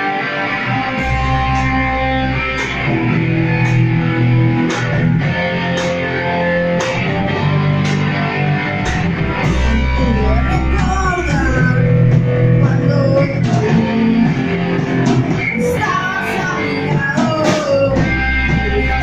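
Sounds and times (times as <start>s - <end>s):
bass notes: 0.0s - 19.0s
electric guitar chords: 0.0s - 19.0s
drum hits: 1.0s - 15.8s.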